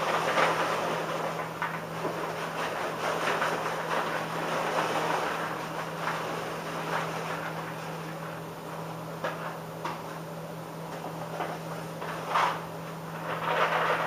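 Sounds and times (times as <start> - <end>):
paper bag crinkling: 0.0 - 7.9.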